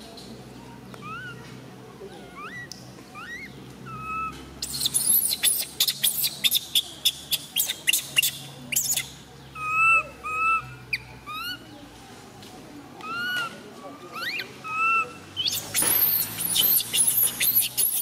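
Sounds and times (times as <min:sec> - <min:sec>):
baby monkey screaming: 0:01.0 - 0:01.4, 0:02.2 - 0:09.0, 0:09.6 - 0:10.6, 0:13.0 - 0:13.5, 0:14.1 - 0:18.0
baby monkey cooing: 0:01.0 - 0:01.5, 0:02.1 - 0:10.6, 0:13.0 - 0:13.5, 0:14.1 - 0:18.0.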